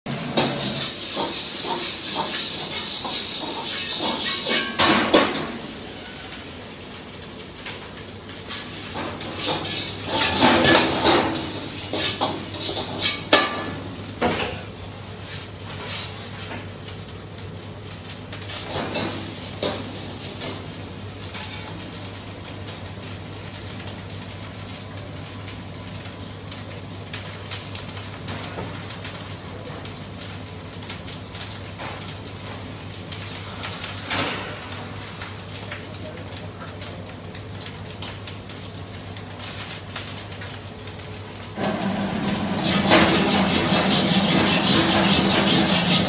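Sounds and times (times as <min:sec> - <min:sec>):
food sizzling in a wok: 0:00.1 - 0:46.0
metal ladle scraping and clanking: 0:41.6 - 0:46.0.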